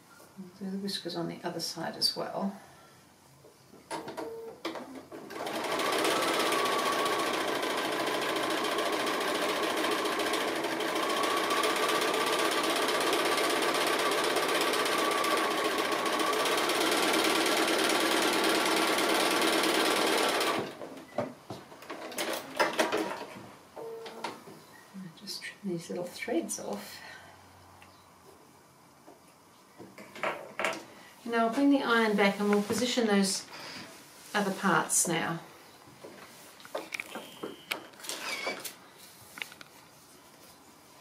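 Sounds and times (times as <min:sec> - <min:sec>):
sewing machine stitching: 0:05.2 - 0:20.8.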